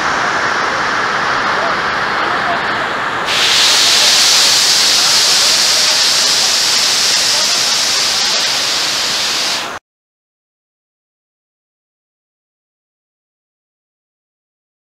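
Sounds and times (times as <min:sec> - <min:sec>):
waterfall rushing: 0:00.0 - 0:09.8.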